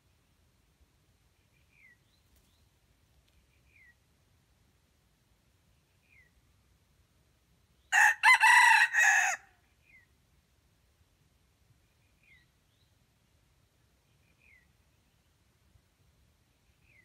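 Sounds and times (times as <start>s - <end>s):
rooster crowing: 7.9s - 9.5s.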